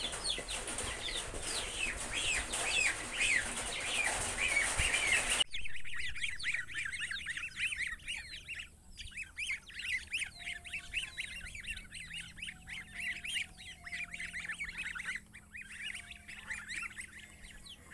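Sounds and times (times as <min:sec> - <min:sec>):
goslings peeping: 0:00.0 - 0:17.9.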